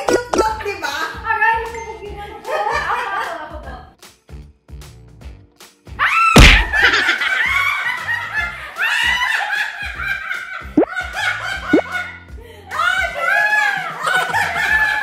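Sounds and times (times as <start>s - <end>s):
women laughing loudly: 6.7s - 15.0s.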